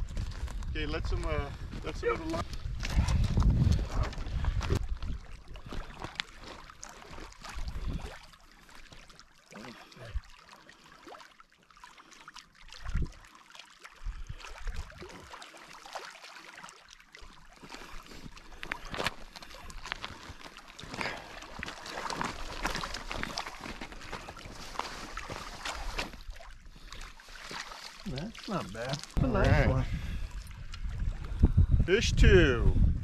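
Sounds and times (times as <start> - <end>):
wind buffeting microphone: 0.0 - 5.9, 29.2 - 33.0
small waves lapping on rocks: 4.5 - 30.6
fish splashing at the surface: 5.1 - 29.2.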